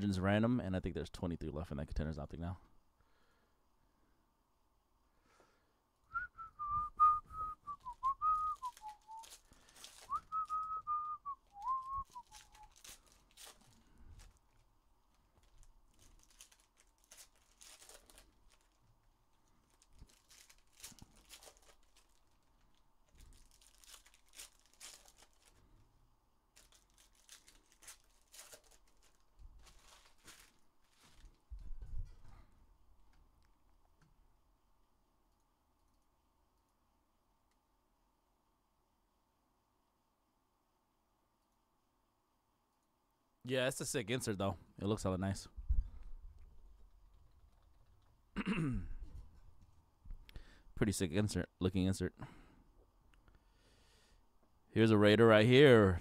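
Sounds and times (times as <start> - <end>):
person whistling a tune: 6.1 - 9.3, 10.0 - 12.8
cards being handled: 7.8 - 10.8, 11.4 - 14.6, 15.2 - 18.8, 19.6 - 22.4, 23.1 - 25.6, 26.6 - 31.4
foil packs being torn open: 7.8 - 10.8, 11.4 - 25.7, 26.5 - 31.4.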